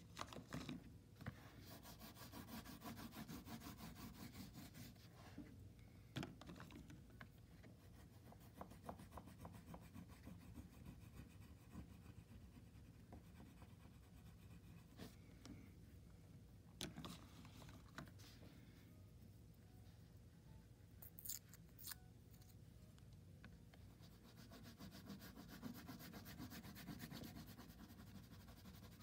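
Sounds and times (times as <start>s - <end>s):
oil pastel scratching on paper: 1.4s - 5.4s, 7.8s - 15.2s, 23.9s - 29.0s.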